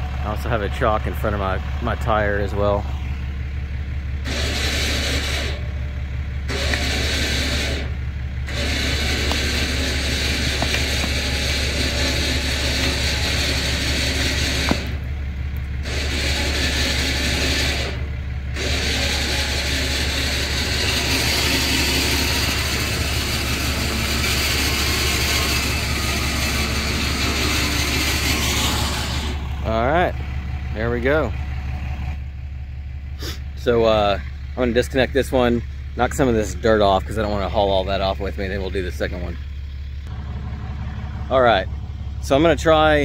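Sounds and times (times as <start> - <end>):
diesel pickup idling: 0.0 - 43.0
electric winch running under load: 1.3 - 30.7.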